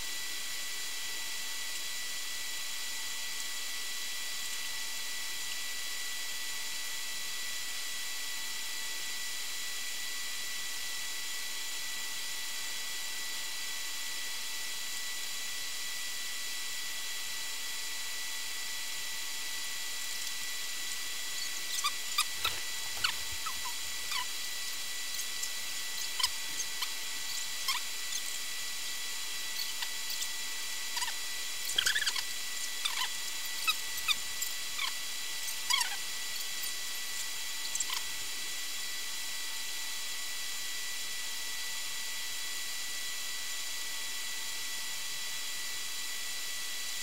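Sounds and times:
faint high whines: 19.8s - 38.2s
small animal chirping: 20.0s - 38.1s.

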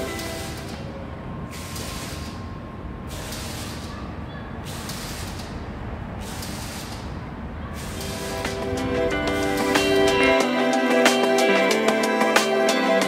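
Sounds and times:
low city rumble: 0.0s - 10.4s.

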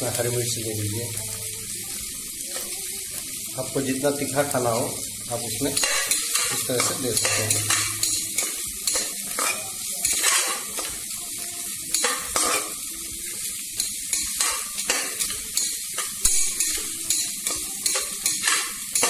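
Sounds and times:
onions sizzling in hot oil: 0.0s - 19.0s
metal spatula scraping pot: 5.7s - 11.0s, 11.9s - 12.8s, 14.1s - 19.0s.

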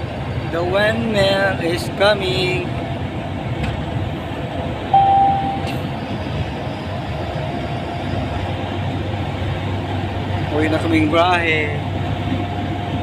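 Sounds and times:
truck engine and road rumble: 0.0s - 13.0s
short steady tone: 4.9s - 5.9s.

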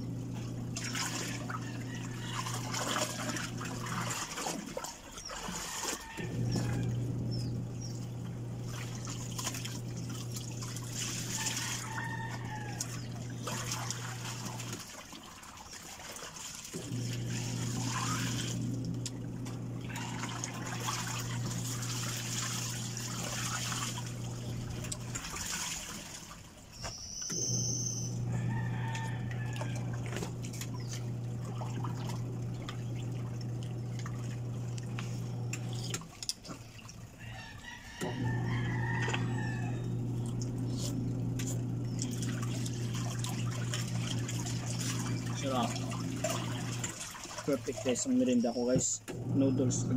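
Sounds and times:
steady low hum: 28.0s - 36.0s, 38.1s - 46.9s
soup slurping: 40.2s - 42.8s.

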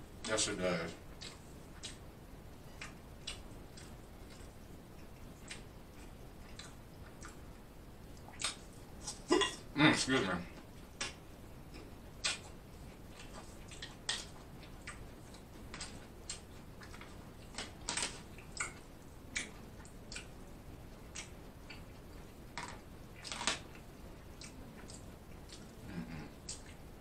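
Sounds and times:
chewing clicks: 2.8s - 7.4s, 13.2s - 20.4s
wet mouth smacks: 12.2s - 12.4s.

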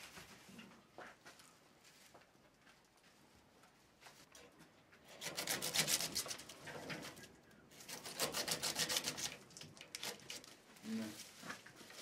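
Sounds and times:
dry straw rustling and rubbing: 7.8s - 12.0s.

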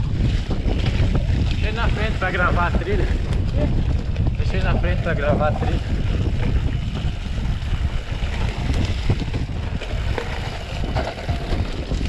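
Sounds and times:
bike clattering over rough ground: 0.0s - 12.0s
wind buffeting microphone: 0.0s - 12.0s.

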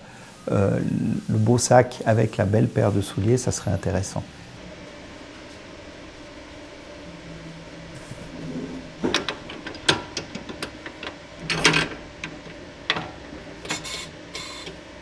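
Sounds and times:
machine humming: 0.0s - 15.0s
mechanical clicks and knocks: 9.0s - 14.0s.

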